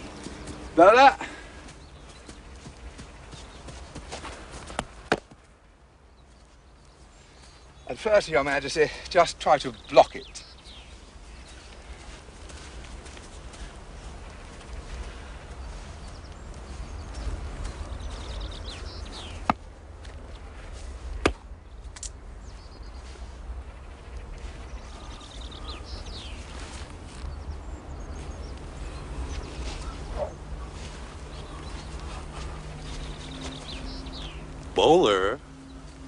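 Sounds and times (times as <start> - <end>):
birds chirping: 0.0 - 36.0
cricket ball hitting bat: 4.8 - 5.4.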